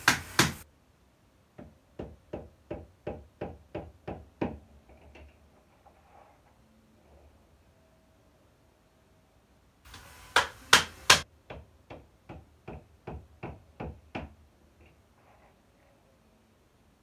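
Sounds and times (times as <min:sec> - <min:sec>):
knocking on tiled panel: 0:00.0 - 0:00.6, 0:10.4 - 0:14.3.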